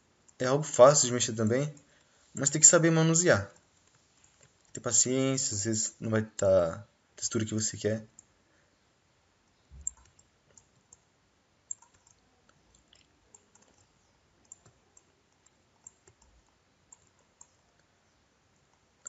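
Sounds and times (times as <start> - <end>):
computer mouse clicking: 9.8 - 11.1, 11.7 - 17.9.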